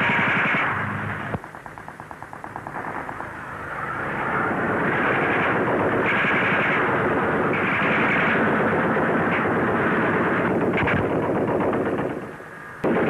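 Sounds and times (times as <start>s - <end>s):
dense battle gunfire: 0.0s - 13.0s
machine-gun fire: 1.4s - 13.0s.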